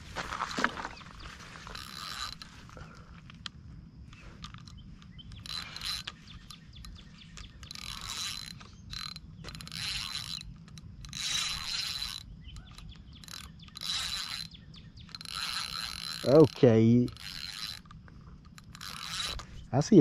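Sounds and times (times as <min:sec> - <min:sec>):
fishing reel whirring: 0:01.1 - 0:20.0.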